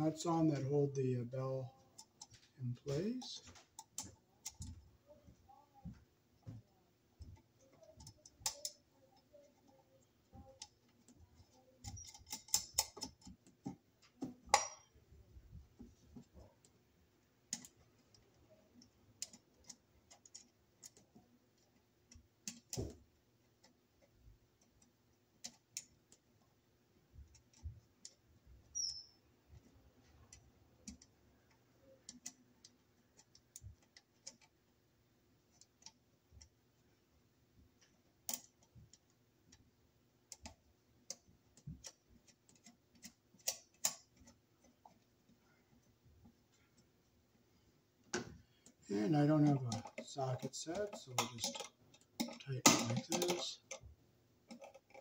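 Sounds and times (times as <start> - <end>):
metallic clicks of nuts threaded: 49.7 - 53.9.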